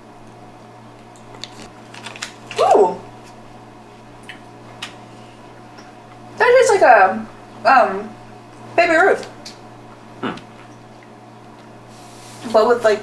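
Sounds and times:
steady low hum: 0.0s - 13.0s
person murmuring mm: 10.2s - 10.6s.

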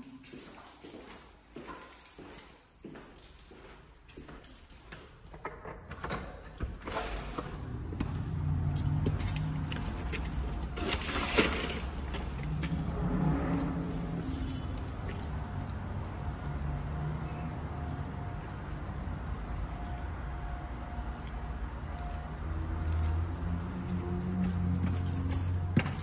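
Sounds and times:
keys jangling: 0.0s - 6.4s, 7.3s - 16.6s, 23.7s - 26.0s
urban background hum: 0.0s - 26.0s.

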